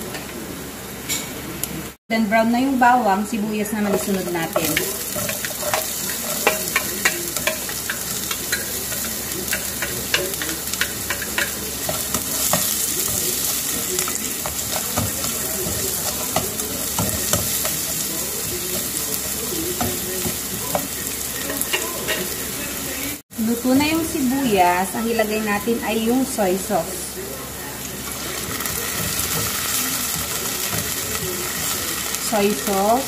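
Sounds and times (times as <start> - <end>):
onion and garlic sizzling in oil: 0.0 - 33.0
spatula scraping and clicking on pan: 3.8 - 22.4.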